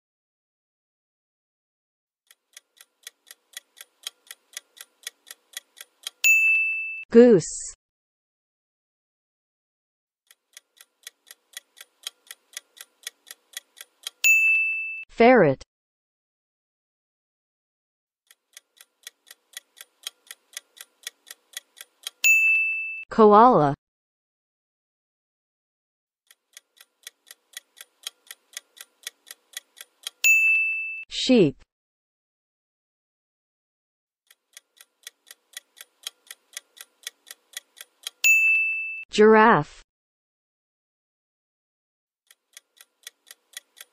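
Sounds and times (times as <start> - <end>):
clock ticking: 2.3 - 6.6, 10.3 - 14.6, 18.3 - 22.6, 26.3 - 30.4, 34.3 - 38.6, 42.3 - 43.9
bell ding: 6.2 - 7.0, 14.2 - 15.0, 22.2 - 23.0, 30.2 - 31.0, 38.2 - 39.0.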